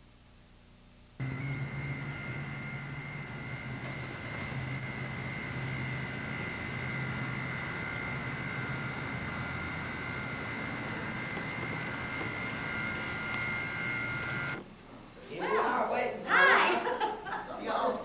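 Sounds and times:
high whine: 1.1s - 14.7s.

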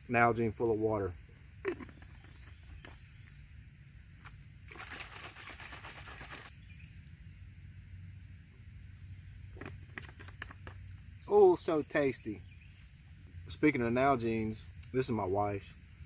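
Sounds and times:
insects chirring: 0.0s - 16.0s
bottle shaken sloshing and rattling: 4.7s - 6.5s.

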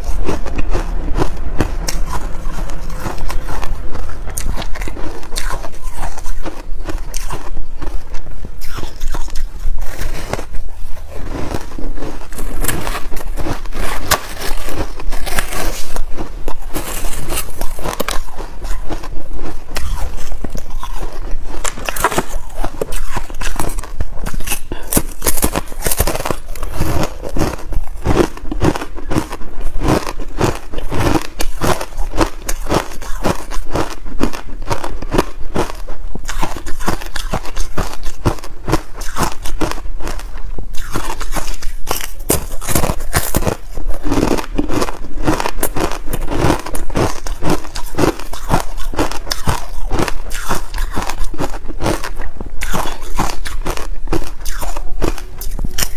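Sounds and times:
crunching ice chunks: 11.3s - 40.2s, 40.8s - 55.9s.

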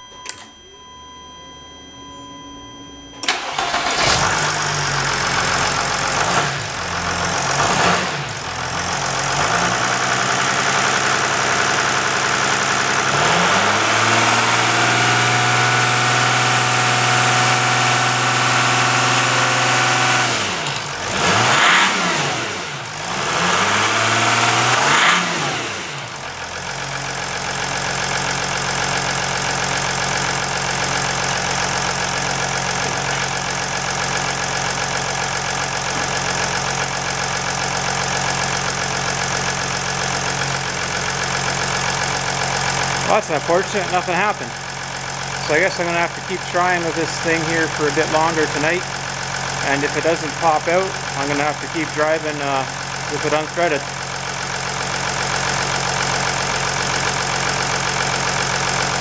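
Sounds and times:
diesel engine starting and revving: 0.0s - 59.0s.

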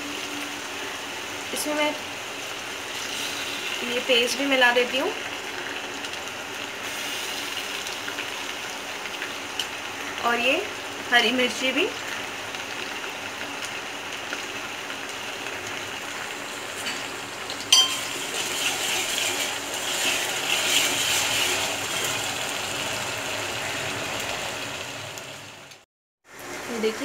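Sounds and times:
food sizzling in hot oil: 0.0s - 27.0s
sharp metallic clink: 17.7s - 18.1s.

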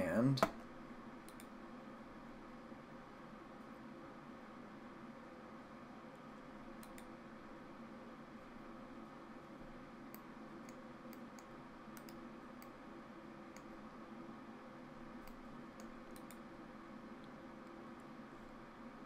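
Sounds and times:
faint steady hum: 0.0s - 19.0s
computer mouse buttons clicking: 1.2s - 1.5s, 6.8s - 7.1s, 10.1s - 12.8s, 15.2s - 16.4s.

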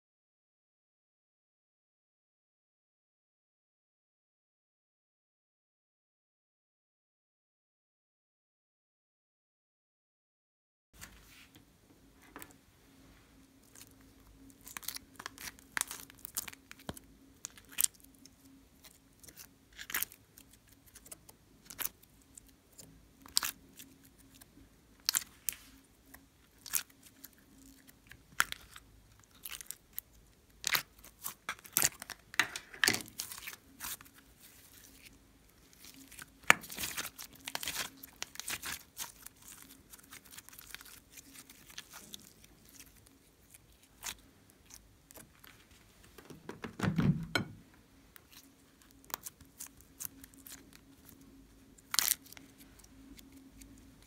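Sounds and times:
slime squelching and popping: 35.7s - 44.2s.

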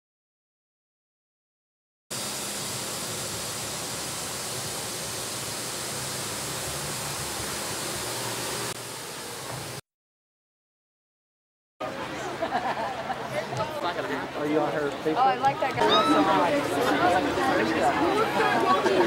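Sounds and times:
steam hissing from manhole: 2.1s - 9.8s.

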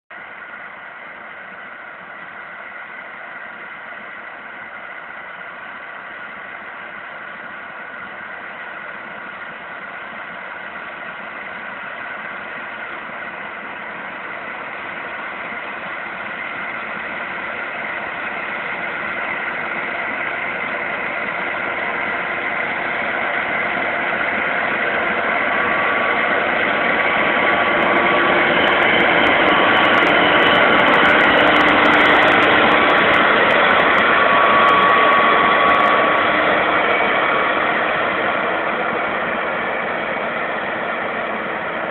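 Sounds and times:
harvester engine humming and whining: 0.2s - 41.9s.

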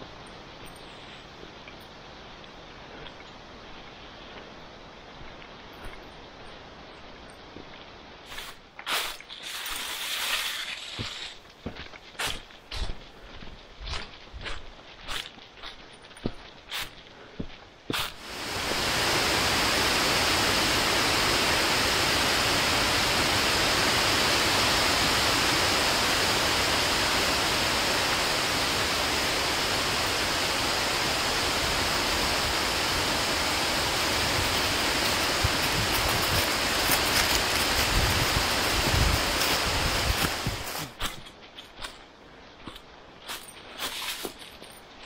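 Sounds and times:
leaves crackling: 7.8s - 15.6s, 17.9s - 41.5s
footsteps on dry leaves: 8.2s - 19.2s, 29.1s - 42.0s
steady rushing noise: 18.0s - 41.0s.

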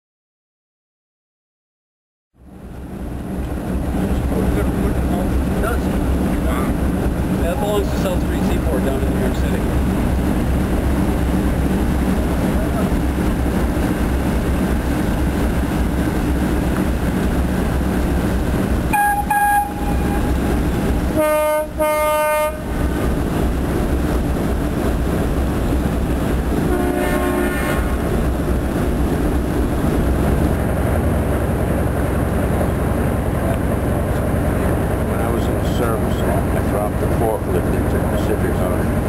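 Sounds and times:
steady low rumble: 2.4s - 21.8s, 22.4s - 39.0s
tugboat horn blasts: 18.9s - 20.5s, 21.1s - 22.8s, 26.7s - 28.0s.

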